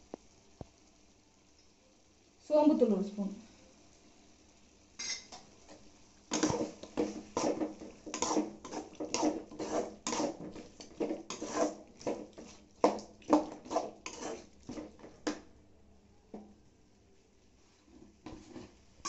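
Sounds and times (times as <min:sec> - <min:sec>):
metal spoon scraping metal pan: 0:06.3 - 0:15.1.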